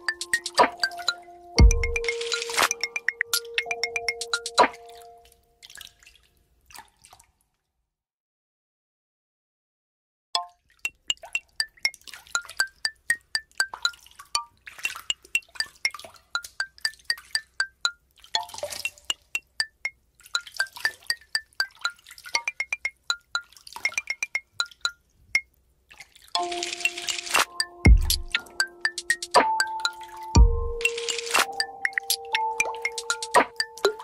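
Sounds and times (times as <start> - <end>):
music with steady tones: 0.0 - 5.2, 18.8 - 20.0, 26.4 - 34.0.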